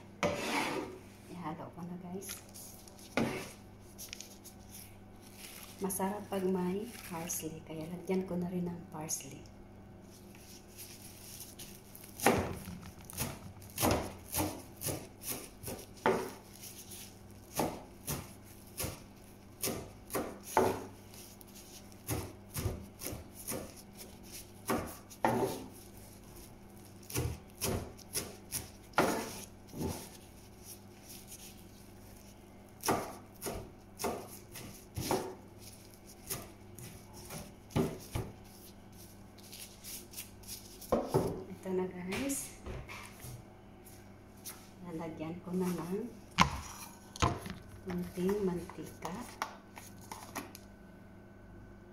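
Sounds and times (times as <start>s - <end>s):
knife chopping on plastic board: 12.1s - 16.8s, 17.5s - 21.0s, 21.6s - 25.9s, 27.0s - 30.2s, 32.8s - 38.6s, 40.2s - 41.4s, 46.4s - 49.5s.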